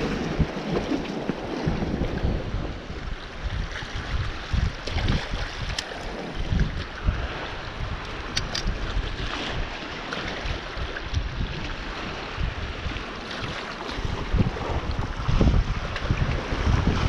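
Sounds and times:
rushing water: 0.0 - 17.0
wind buffeting microphone: 0.0 - 17.0
sharp clicks: 8.3 - 8.7.

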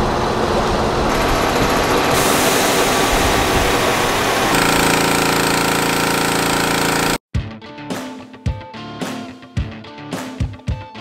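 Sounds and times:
small gasoline engine running: 1.0 - 7.2.

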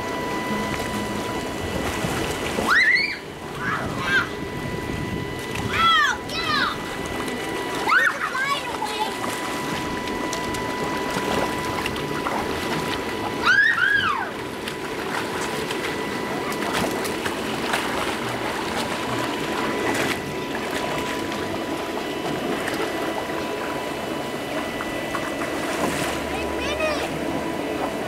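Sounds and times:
air blower humming: 0.0 - 28.0
child squealing: 2.7 - 4.4, 13.4 - 14.3
water splashing: 6.7 - 28.0.

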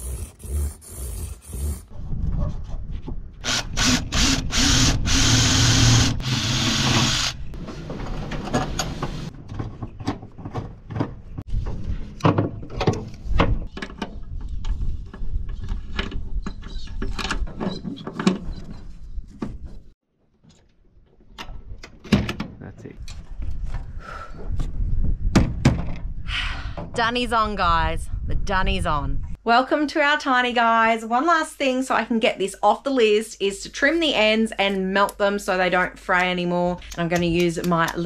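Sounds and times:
power tool running: 3.4 - 7.4.

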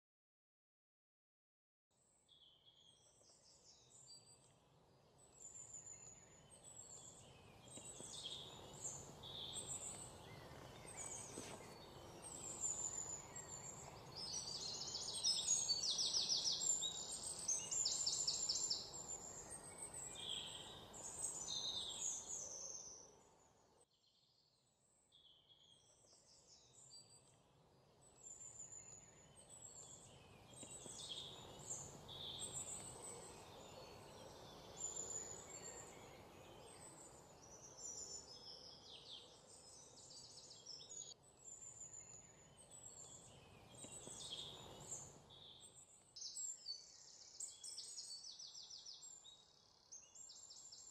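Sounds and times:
birds chirping and singing: 5.3 - 23.0.

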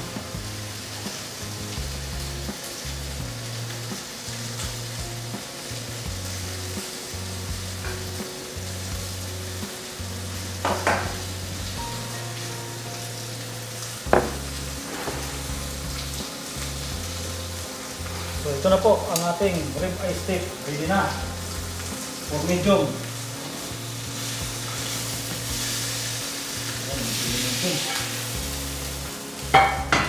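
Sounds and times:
steak sizzling in a pan: 0.0 - 30.0
sharp knocks on pan: 10.6 - 11.2, 14.1 - 15.3, 29.6 - 30.0.

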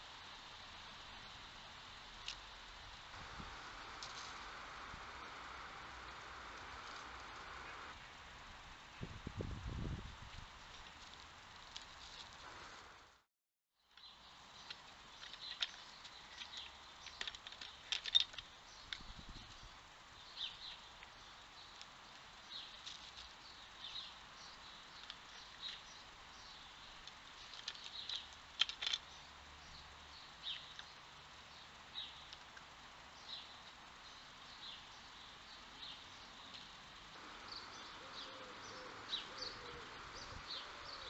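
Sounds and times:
small birds chirping: 13.8 - 41.0.

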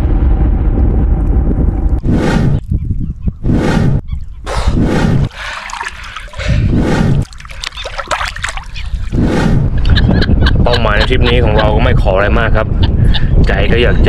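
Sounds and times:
water splashing and trickling: 5.2 - 9.3
heavy water surges: 5.3 - 6.6
water drips: 5.3 - 6.6, 7.2 - 9.2.

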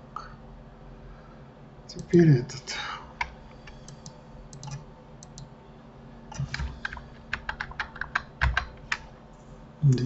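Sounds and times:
keyboard and mouse clicking: 3.2 - 5.5, 6.3 - 9.1.

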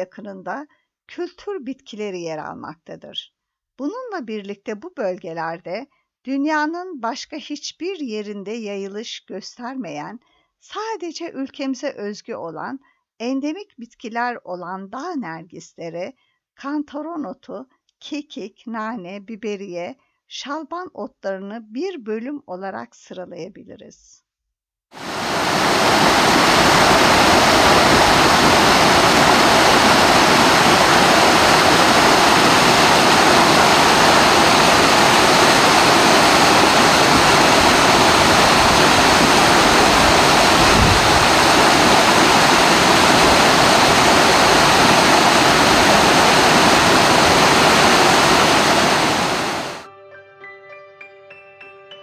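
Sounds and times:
rush of falling water: 25.0 - 49.8.

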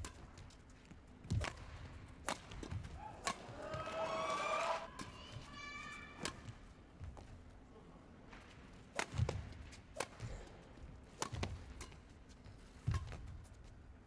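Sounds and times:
racket striking shuttlecock: 1.3 - 4.0, 6.2 - 6.6, 8.9 - 10.3, 11.1 - 12.1, 12.8 - 13.4.

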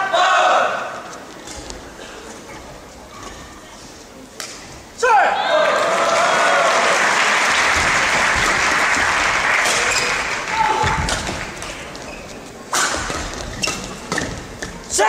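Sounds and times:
crowd applauding and cheering: 5.5 - 10.8.

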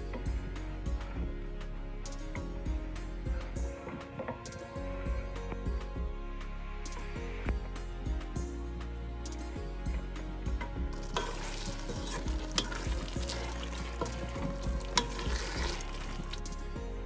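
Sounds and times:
food sizzling: 10.9 - 16.6
wooden spatula scraping pot: 11.0 - 16.6.

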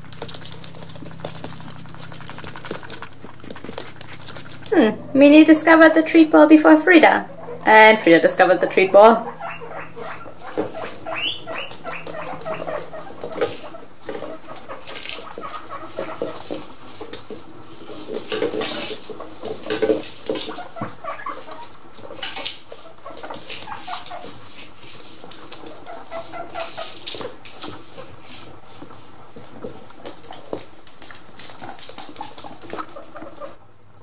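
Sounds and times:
guinea pigs squeaking: 0.0 - 33.6.

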